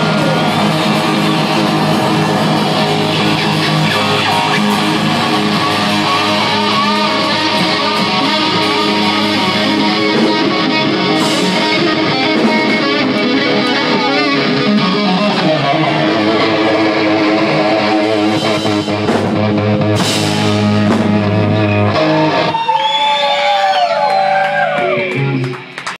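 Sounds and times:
lone guitar bending notes: 0:00.0 - 0:22.5
hard rock band playing: 0:00.0 - 0:25.9.

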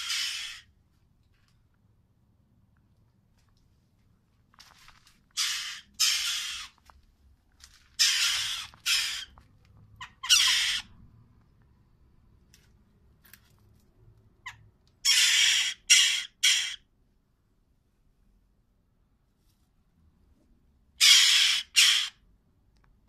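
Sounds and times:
jackdaw harsh squawks: 0:00.0 - 0:00.8, 0:05.3 - 0:06.8, 0:07.9 - 0:09.4, 0:10.0 - 0:11.0, 0:14.4 - 0:16.9, 0:21.0 - 0:22.3.

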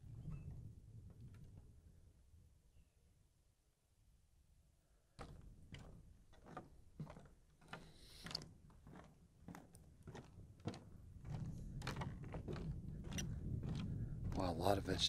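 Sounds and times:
quiet footsteps walking: 0:05.2 - 0:15.0.

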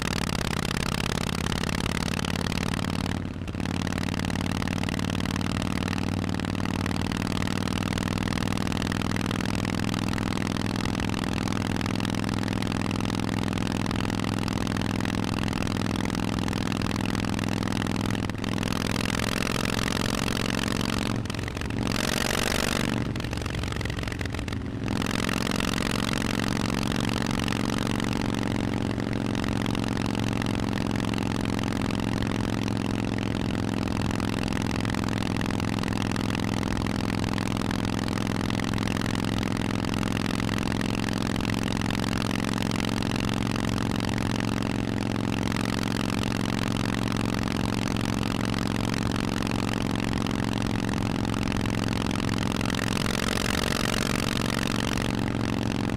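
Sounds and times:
motorcycle engine running: 0:00.0 - 0:55.9
wind and road noise: 0:11.0 - 0:30.8.

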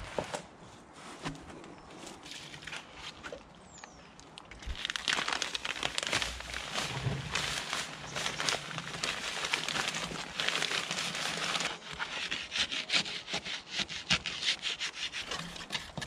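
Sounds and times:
plastic sack crinkling: 0:04.6 - 0:12.1.

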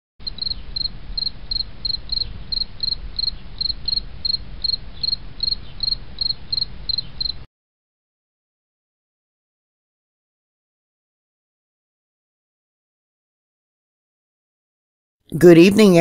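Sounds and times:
insect chirping: 0:00.2 - 0:07.5.

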